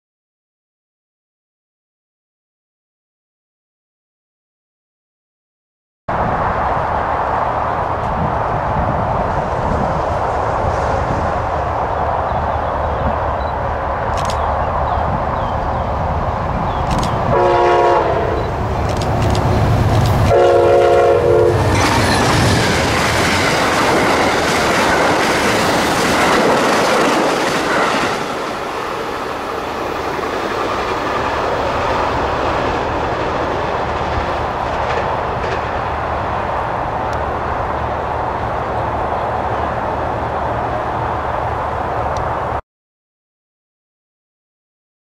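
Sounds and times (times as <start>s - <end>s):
train wheels on rails: 6.2s - 42.6s
train horn blasts: 17.3s - 18.5s, 20.3s - 22.1s.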